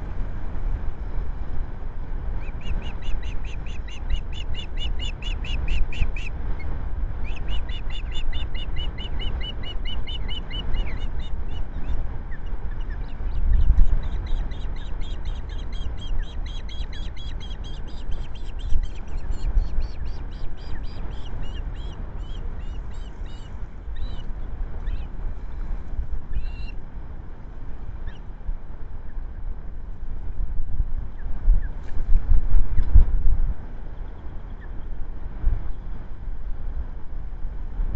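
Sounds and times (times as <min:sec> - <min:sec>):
wind rumble on microphone: 0:00.0 - 0:37.9
high piping bird chirps: 0:02.4 - 0:25.1, 0:26.3 - 0:26.8.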